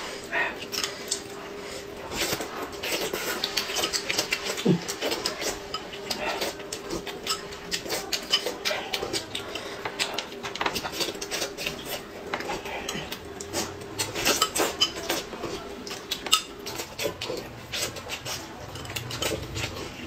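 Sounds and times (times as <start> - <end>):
wet chewing and lip smacking: 2.1 - 19.8.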